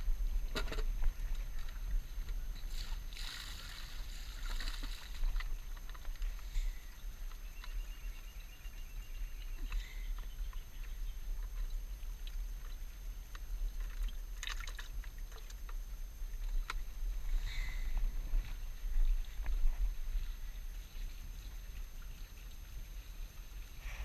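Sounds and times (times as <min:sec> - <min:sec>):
wind rumbling on microphone: 0:00.0 - 0:14.4, 0:15.1 - 0:24.0
plastic bucket and tackle rustling: 0:00.6 - 0:06.9.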